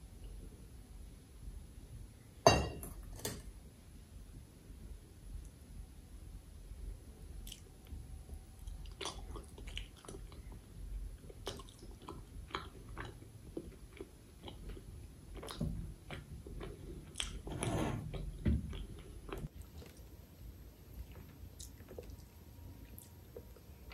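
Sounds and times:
chewing and wet mouth sounds: 7.4s - 8.0s, 8.6s - 17.4s, 18.7s - 20.2s, 21.0s - 23.9s.

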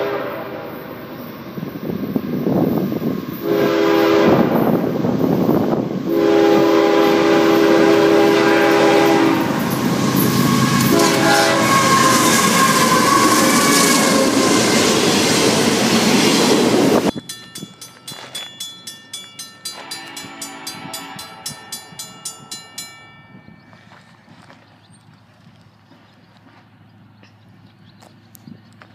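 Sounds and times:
locomotive air horn: 0.0s - 0.9s, 3.4s - 4.8s, 6.1s - 15.6s, 19.8s - 21.6s
train rushing past: 0.0s - 23.7s
crossing bell dinging: 17.0s - 24.6s.

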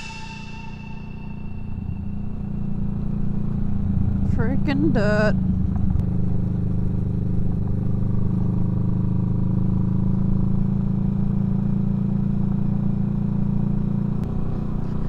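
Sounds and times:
motorcycle engine cruising: 0.8s - 15.0s.

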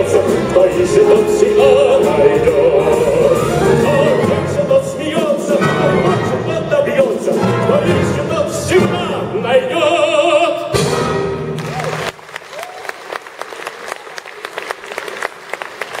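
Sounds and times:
orchestra playing: 0.0s - 12.2s
audience applause: 11.6s - 16.0s.

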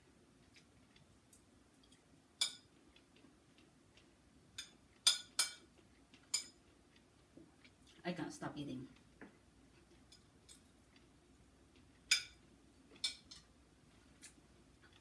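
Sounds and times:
spoon clinking against plate: 2.4s - 2.7s, 4.6s - 5.7s, 6.3s - 6.6s, 12.1s - 12.4s.

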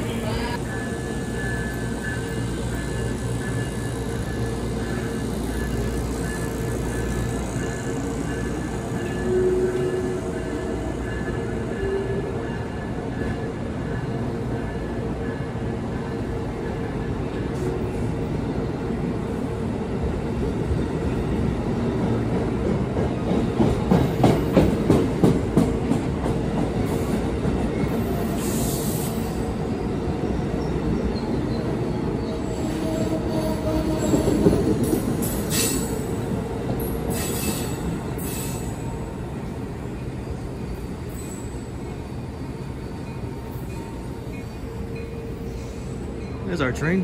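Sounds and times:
train wheels clacking over rails: 0.6s - 14.0s, 20.4s - 29.5s, 32.5s - 38.9s.

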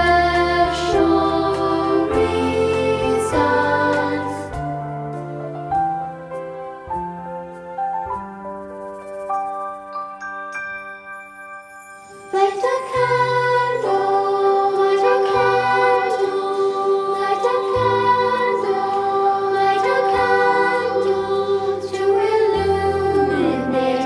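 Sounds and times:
children's choir singing: 0.0s - 4.7s, 12.3s - 24.0s
instrumental accompaniment: 0.0s - 24.0s.

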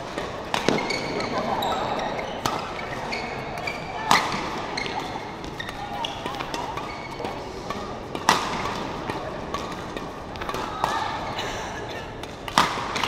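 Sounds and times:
racket striking shuttlecock: 0.0s - 1.4s, 2.1s - 11.2s, 12.2s - 13.0s
murmur of voices: 0.0s - 13.0s
shoes squeaking on court: 0.2s - 7.8s.

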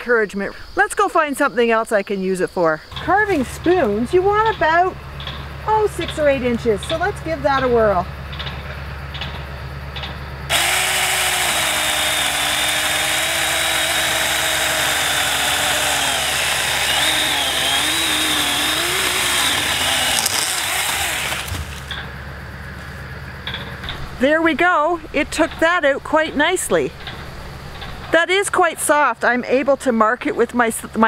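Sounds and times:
electric chainsaw cutting wood: 10.5s - 21.9s.

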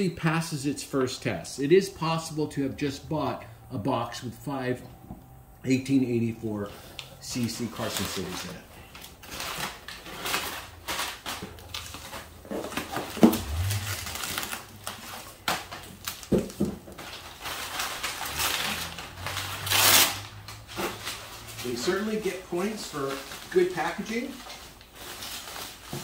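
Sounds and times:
packing paper and bubble wrap rustling: 6.7s - 26.0s.

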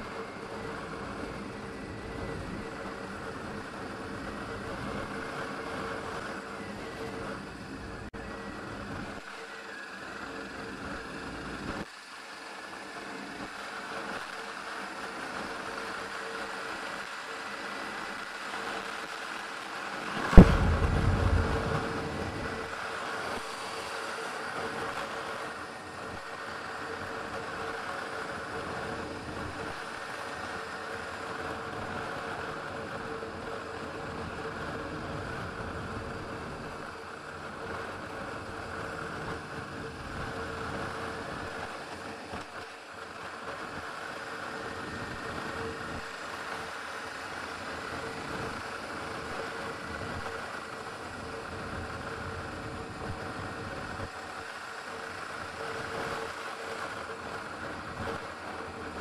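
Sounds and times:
road and wind noise: 19.9s - 22.7s
sharp loud knock: 20.3s - 21.9s.

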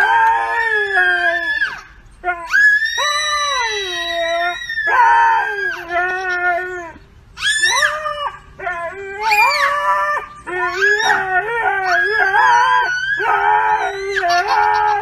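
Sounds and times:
dog howling: 0.0s - 15.0s
toddler wailing: 10.6s - 15.0s.

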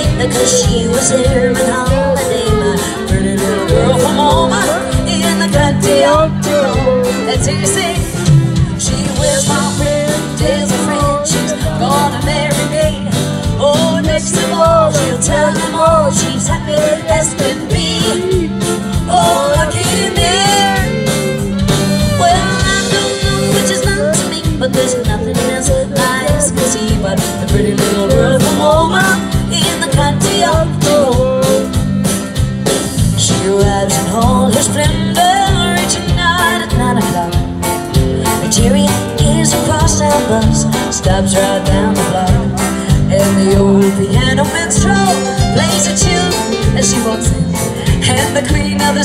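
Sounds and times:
country band playing: 0.0s - 49.0s
fiddle: 0.0s - 49.0s.

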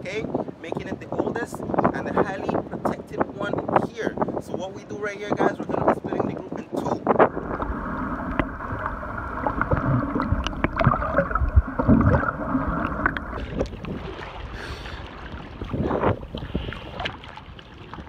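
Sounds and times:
waves sloshing: 5.8s - 18.0s
underwater rumble and bubbling: 7.0s - 18.0s
underwater thumps: 7.1s - 18.0s.

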